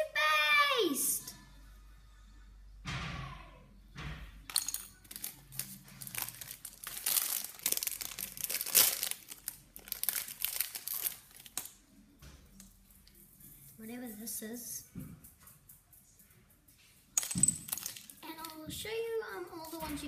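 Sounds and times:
packaging crinkling and tearing: 5.1 - 11.7.

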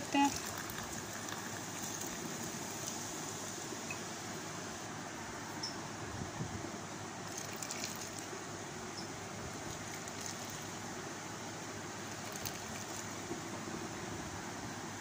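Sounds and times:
soda pouring: 0.0 - 4.1, 7.2 - 8.3, 9.5 - 10.9, 12.0 - 13.3
soda fizzing and crackling: 0.0 - 4.2, 7.2 - 8.3, 9.5 - 10.9, 12.0 - 13.3
background hiss: 0.0 - 15.0.

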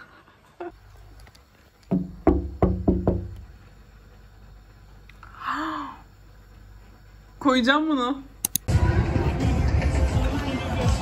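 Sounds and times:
sharp ringing knocks: 1.9 - 3.4.

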